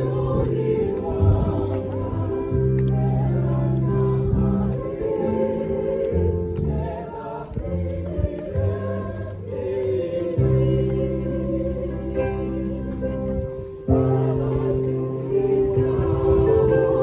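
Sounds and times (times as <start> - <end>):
choir singing a hymn: 0.0 - 17.0.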